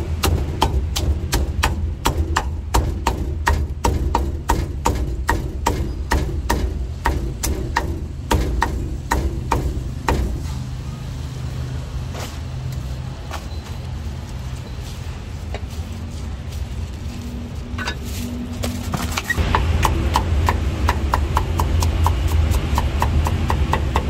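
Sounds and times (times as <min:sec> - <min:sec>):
cleaver chopping on wooden block: 0:00.2 - 0:10.5, 0:19.4 - 0:24.0.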